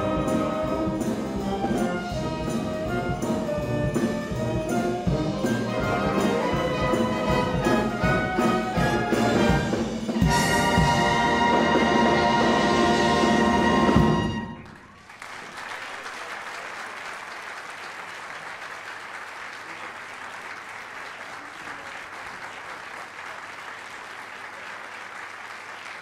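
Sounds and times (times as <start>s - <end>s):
wind band playing chord: 0.0s - 14.8s
audience applauding: 12.1s - 26.0s.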